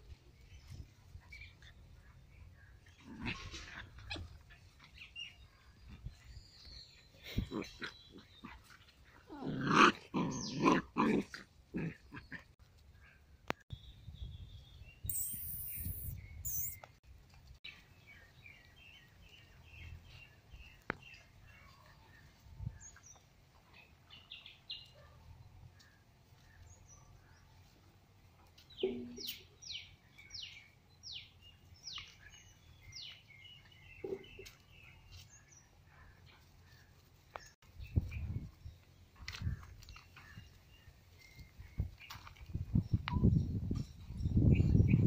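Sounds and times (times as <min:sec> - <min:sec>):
small birds chirping: 0:11.9 - 0:17.0, 0:28.4 - 0:45.0.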